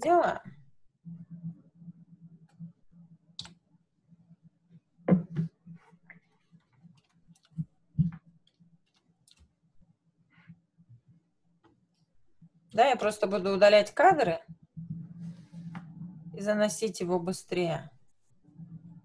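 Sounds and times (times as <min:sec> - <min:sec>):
faint low hum: 0:00.0 - 0:19.0
computer mouse clicking: 0:03.4 - 0:03.6, 0:06.2 - 0:07.7, 0:08.4 - 0:09.5.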